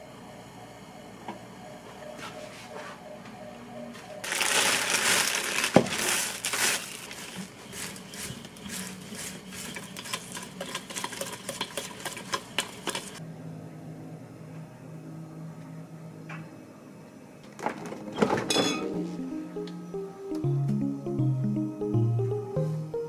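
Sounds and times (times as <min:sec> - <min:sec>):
plastic bag crinkling: 0:04.2 - 0:09.6.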